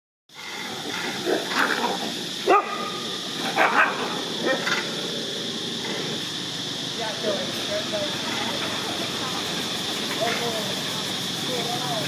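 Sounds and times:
steady high-pitched hiss: 0.3s - 12.0s
dogs barking: 1.0s - 5.1s.

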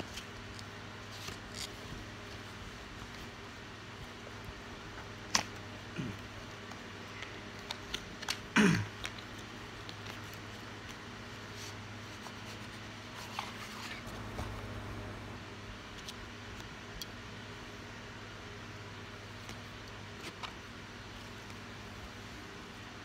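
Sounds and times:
low hum: 13.5s - 15.8s.

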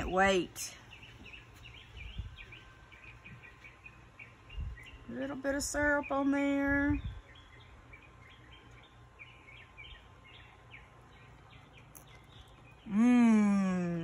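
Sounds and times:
birds chirping faintly: 0.0s - 14.0s
woman humming with enjoyment: 12.9s - 14.0s.

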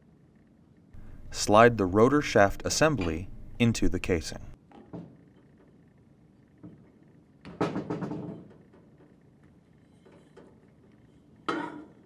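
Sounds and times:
metallic knocks and scrapes: 2.6s - 3.7s.

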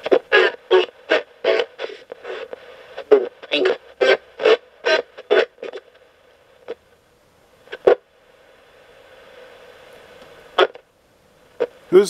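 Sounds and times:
radio station snatches: 0.0s - 5.9s
faint radio hiss: 0.0s - 12.0s.

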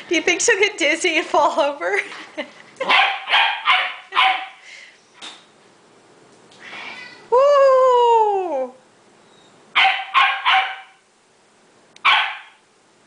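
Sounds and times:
puppy yapping: 2.9s - 4.6s, 9.8s - 11.0s, 12.0s - 12.6s.

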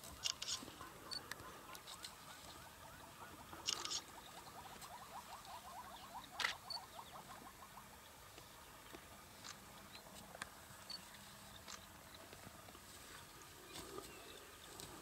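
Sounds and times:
rapid chirping trill: 3.5s - 8.0s.

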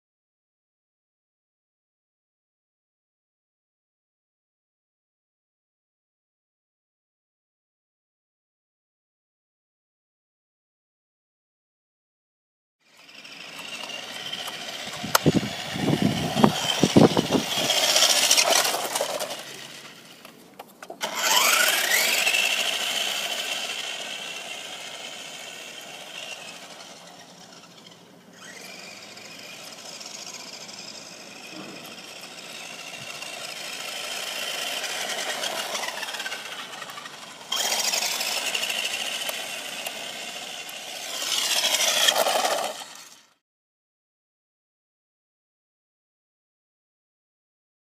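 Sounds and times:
toy car motor whining: 12.8s - 43.4s.

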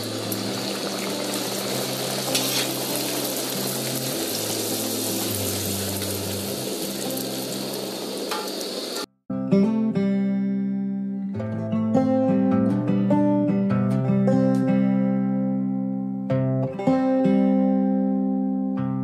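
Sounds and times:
dough sizzling in hot oil: 0.0s - 9.1s
acoustic guitar music: 0.0s - 19.0s.

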